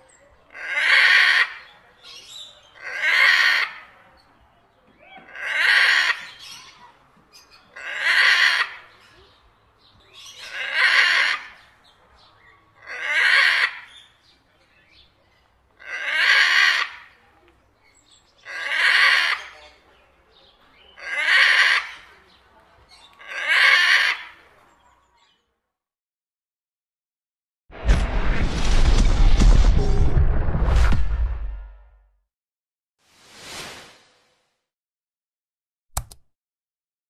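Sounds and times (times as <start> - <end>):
macaw calling harshly: 12.8 - 13.9, 18.4 - 19.6, 21.0 - 22.1, 23.2 - 24.4.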